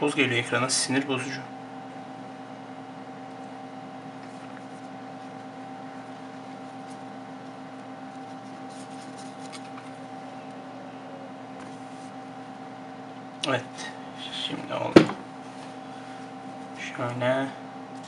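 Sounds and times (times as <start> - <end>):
cloth rubbing phone screen: 8.0 - 10.0.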